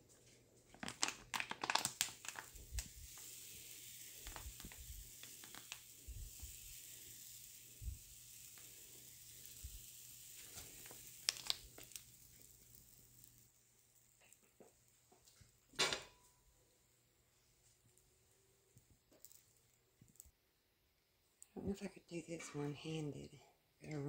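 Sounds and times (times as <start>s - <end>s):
batter sizzling in a frying pan: 0.6s - 15.7s.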